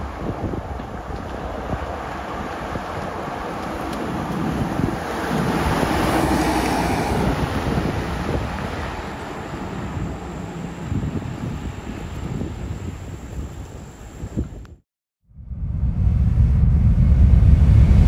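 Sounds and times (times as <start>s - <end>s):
wind buffeting microphone: 0.0s - 14.8s
diesel vehicle driving past: 1.9s - 12.0s.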